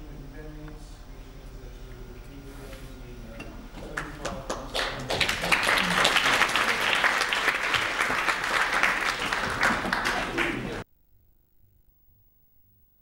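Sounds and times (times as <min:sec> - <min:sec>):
audience applauding: 0:03.9 - 0:10.8.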